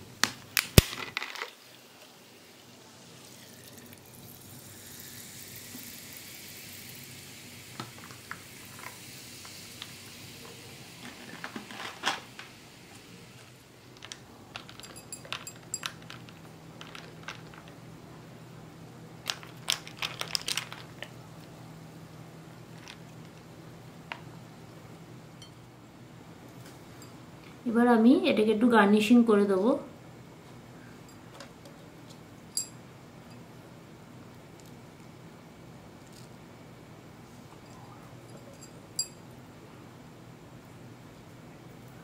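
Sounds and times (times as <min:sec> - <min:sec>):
soda water pouring and fizzing: 0:01.6 - 0:12.8
ice and straws clinking on glass: 0:14.0 - 0:17.7.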